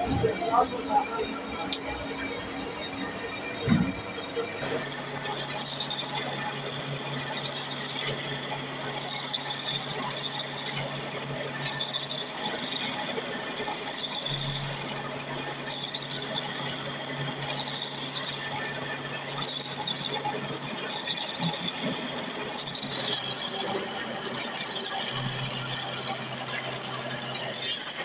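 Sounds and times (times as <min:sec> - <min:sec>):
gritty cutting noise: 0:21.2 - 0:28.0.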